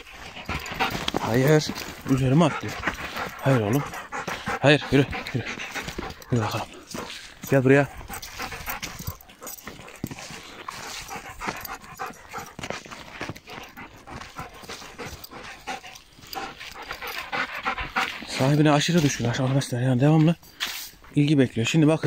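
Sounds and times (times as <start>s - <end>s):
dog panting: 0.0s - 20.2s
footsteps crunching on dry leaves: 5.7s - 17.0s.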